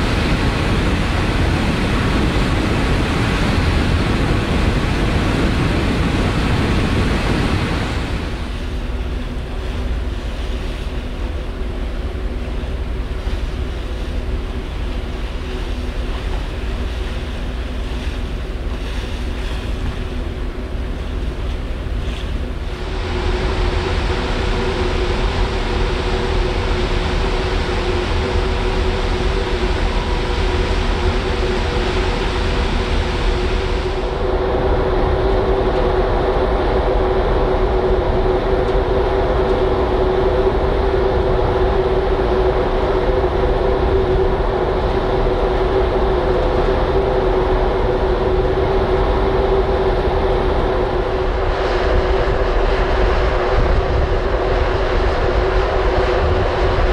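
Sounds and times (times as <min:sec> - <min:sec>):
machinery hum: 0:00.0 - 0:56.9
ship machinery rumble: 0:00.0 - 0:56.9.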